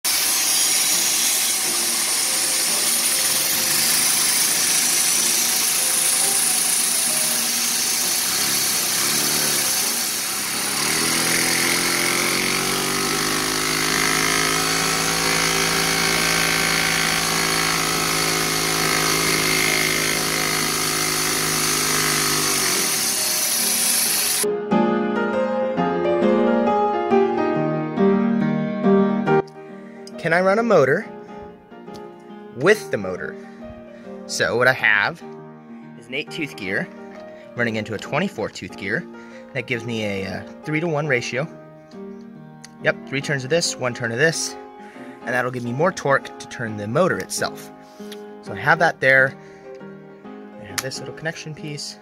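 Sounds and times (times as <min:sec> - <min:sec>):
vacuum cleaner running: 0:00.0 - 0:24.5.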